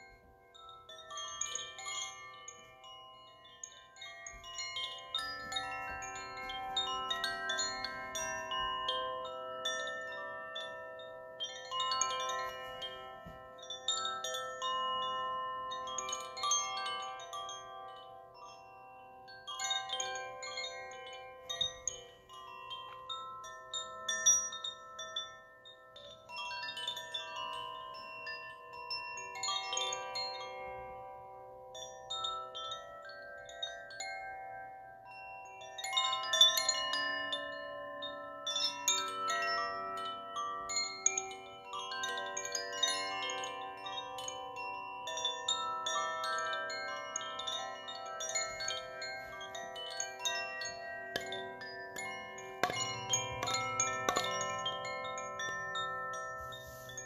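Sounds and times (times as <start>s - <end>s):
wooden chimes ringing: 47.2s - 57.0s.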